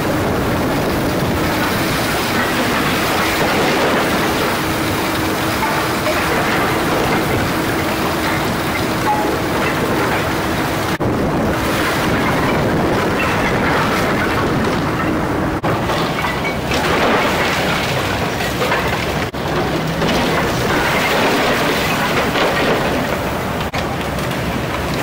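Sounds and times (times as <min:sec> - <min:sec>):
diesel engine: 0:00.0 - 0:25.0
excavator bucket tearing walls: 0:00.1 - 0:25.0
timber cracking and crashing: 0:15.6 - 0:24.4.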